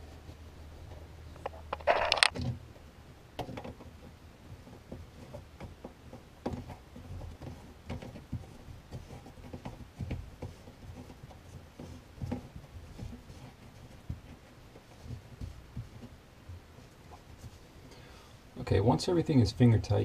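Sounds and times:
plastic nut clicking and rubbing: 1.4s - 2.6s.

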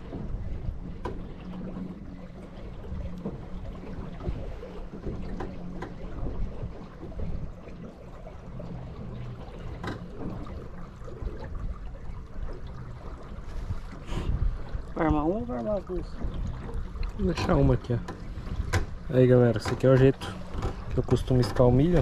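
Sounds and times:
water lapping against boat: 0.0s - 22.0s
wind rumble on microphone: 0.0s - 22.0s.

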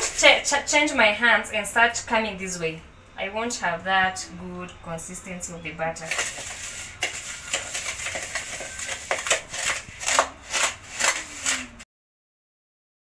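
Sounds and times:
spoon scraping plastic bowl: 0.0s - 0.4s, 6.0s - 11.8s.

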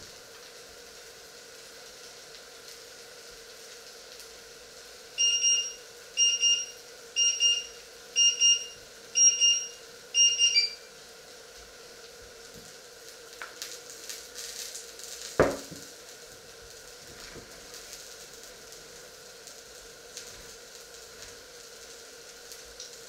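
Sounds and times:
rapid high-pitched electronic beeps: 5.2s - 10.9s.

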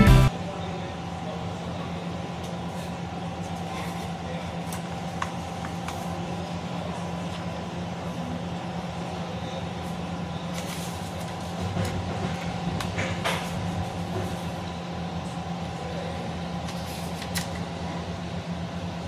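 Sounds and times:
steady mechanical hum: 0.0s - 19.0s
paper page rustling: 10.5s - 11.8s.

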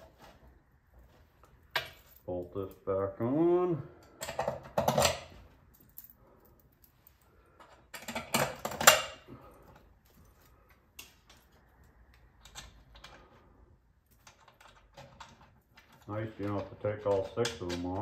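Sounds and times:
metal bolts and wrench clattering: 4.0s - 6.2s, 7.6s - 9.3s, 14.1s - 18.0s.

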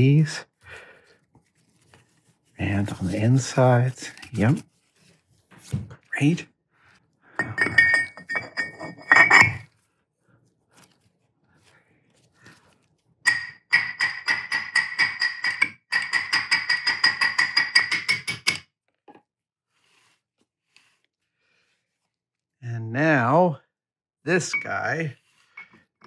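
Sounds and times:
ringing metal clanks: 7.4s - 9.6s.

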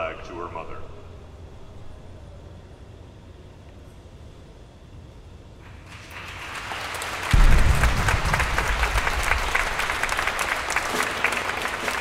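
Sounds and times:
audience applause: 5.7s - 12.0s
loud low thump: 7.4s - 9.8s.

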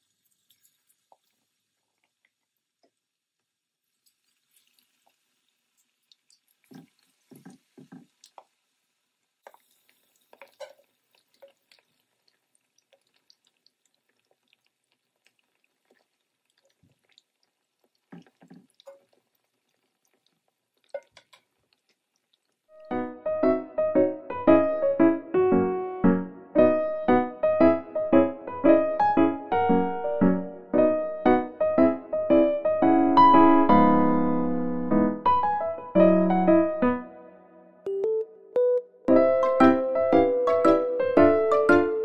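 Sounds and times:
chicken deep-frying in oil: 0.0s - 23.1s.

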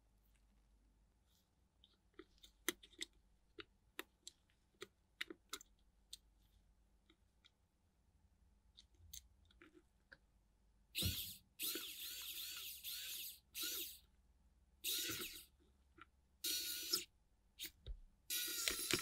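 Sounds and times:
electric screwdriver whine: 11.0s - 14.0s, 14.9s - 15.4s, 16.5s - 17.0s.

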